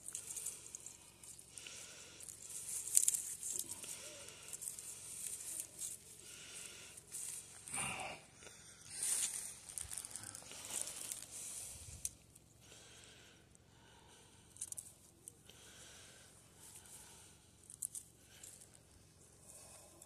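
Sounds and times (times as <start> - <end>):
rustling evergreen boughs and ribbon: 0.0 - 7.9, 8.6 - 12.4.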